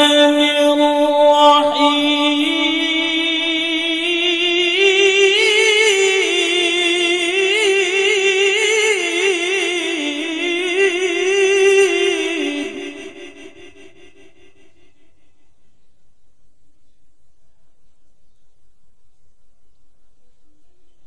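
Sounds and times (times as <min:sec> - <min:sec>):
man reciting melodiously: 0:00.0 - 0:15.0.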